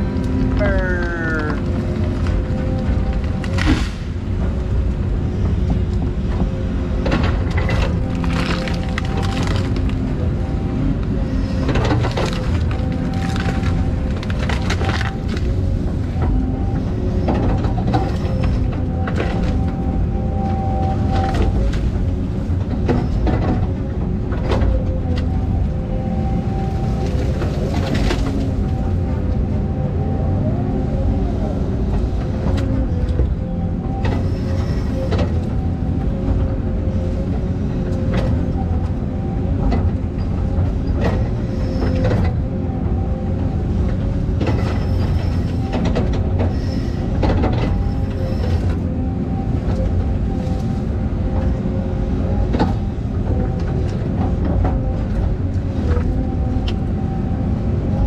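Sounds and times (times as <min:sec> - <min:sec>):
excavator engine rumble: 0:00.0 - 0:58.0
hydraulic whine: 0:24.5 - 0:58.0.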